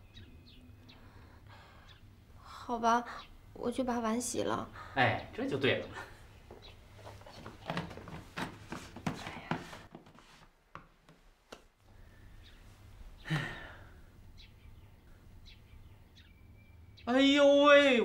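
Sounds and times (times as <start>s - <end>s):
person sighing: 13.2s - 14.1s.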